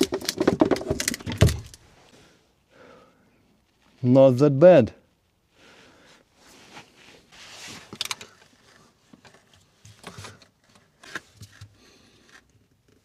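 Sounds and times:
hands rustling and scraping: 6.3 - 12.5.

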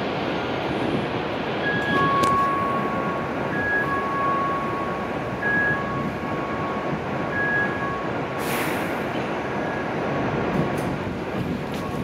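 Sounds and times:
air release hiss: 8.4 - 9.0.

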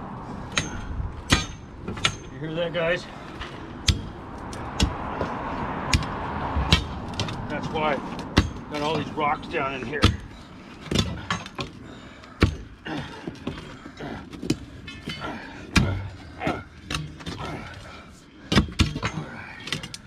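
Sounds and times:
steel bar clanking on concrete: 0.5 - 2.4.

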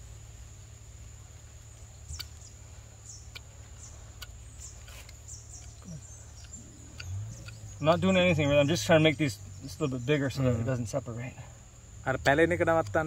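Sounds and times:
insect chirps: 0.0 - 13.0
hoof knife clicks: 6.4 - 7.7.

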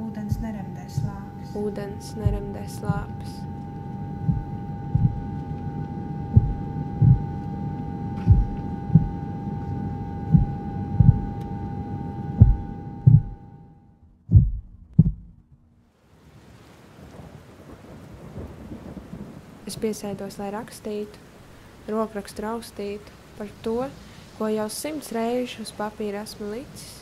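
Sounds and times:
sustained musical drone: 0.0 - 14.0
heartbeat thumps: 0.2 - 11.4, 12.3 - 13.4, 14.2 - 15.4
rain: 15.9 - 27.0.

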